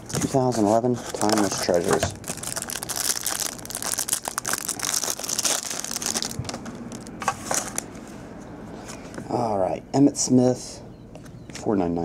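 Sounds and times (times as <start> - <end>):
plastic wrapper crinkling: 0.1 - 7.9.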